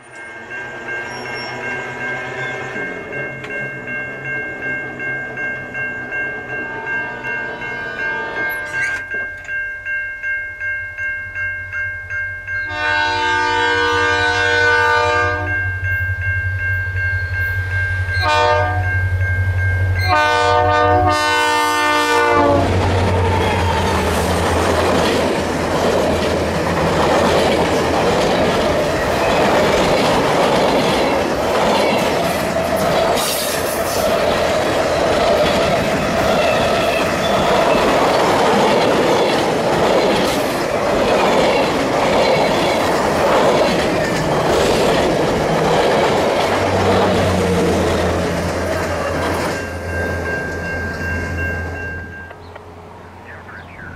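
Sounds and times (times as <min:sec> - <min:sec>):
fast-ringing bell: 0:00.0 - 0:12.8, 0:15.4 - 0:20.2, 0:49.1 - 0:52.3
train horn blasts: 0:06.6 - 0:08.8, 0:12.7 - 0:15.6, 0:18.2 - 0:19.0, 0:20.0 - 0:22.8
diesel engines humming: 0:17.2 - 0:53.9
train wheels clattering on rails: 0:22.6 - 0:52.7.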